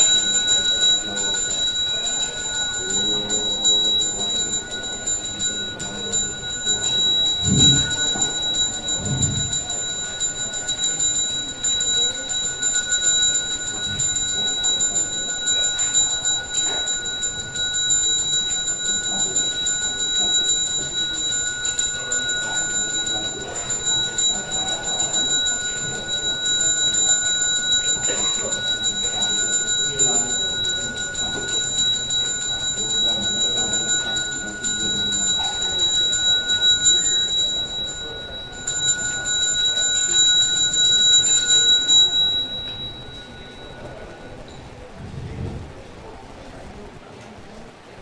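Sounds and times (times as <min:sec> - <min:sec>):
hand bell ringing: 0:00.0 - 0:44.9.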